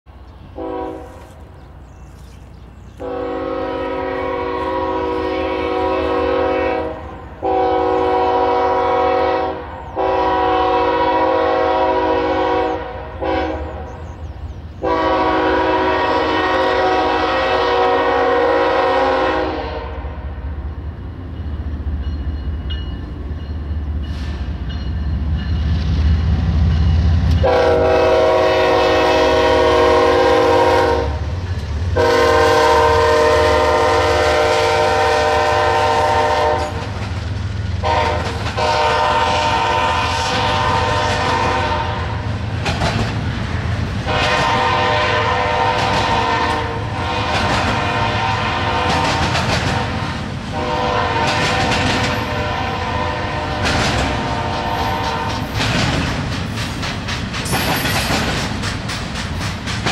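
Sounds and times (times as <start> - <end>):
locomotive rumble: 0.1 - 59.9
locomotive air horn blasts: 0.6 - 1.4, 3.0 - 14.0, 14.8 - 20.2, 27.4 - 31.4, 32.0 - 37.0, 37.8 - 42.3, 44.0 - 55.6.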